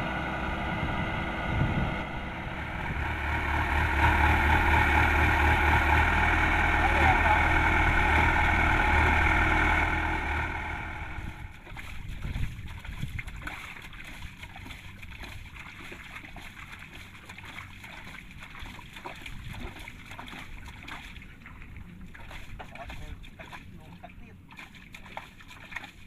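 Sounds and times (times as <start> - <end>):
combine harvester engine: 0.0 - 11.7
water noise with small crackles: 0.0 - 26.0.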